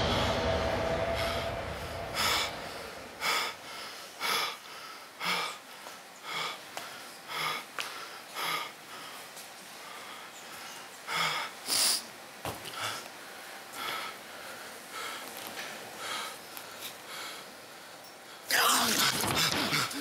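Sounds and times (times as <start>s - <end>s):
low rumble: 0.0s - 3.8s
man snorting and breathing hard: 0.0s - 9.2s.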